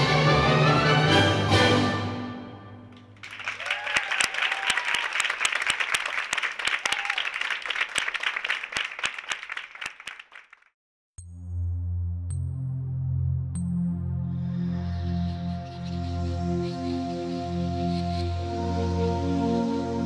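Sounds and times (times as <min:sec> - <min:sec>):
orchestral music: 0:00.0 - 0:03.2, 0:12.6 - 0:20.0
audience applauding: 0:02.9 - 0:10.7
voices cheering: 0:03.2 - 0:09.0.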